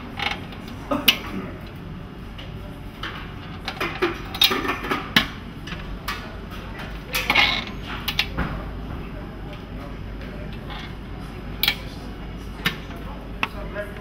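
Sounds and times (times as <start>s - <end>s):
low steady hum: 0.0s - 14.0s
metal lids clinking and clattering: 3.7s - 5.3s.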